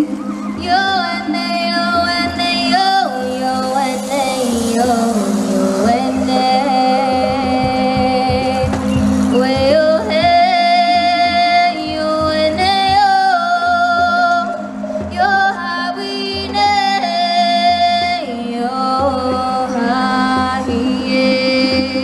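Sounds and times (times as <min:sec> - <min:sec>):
steady low drone: 0:00.0 - 0:22.0
woman singing through speaker: 0:00.0 - 0:22.0
hand drum beats: 0:03.8 - 0:10.6.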